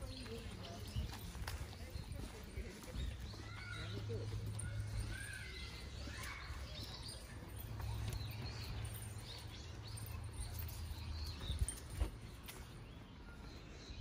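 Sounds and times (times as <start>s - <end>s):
small birds chirping: 0.0s - 14.0s.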